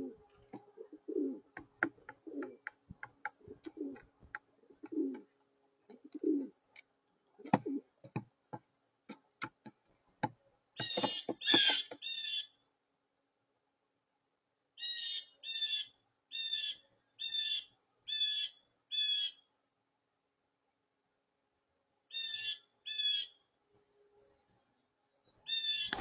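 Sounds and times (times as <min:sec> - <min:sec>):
pigeon cooing softly: 0:00.0 - 0:02.7, 0:03.3 - 0:05.3, 0:05.9 - 0:06.6, 0:07.4 - 0:08.0
beak pecking seed on table: 0:07.4 - 0:12.1.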